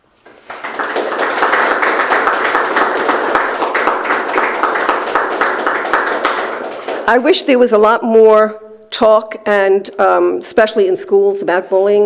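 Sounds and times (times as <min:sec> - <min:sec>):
audience applauding: 0:00.2 - 0:07.2.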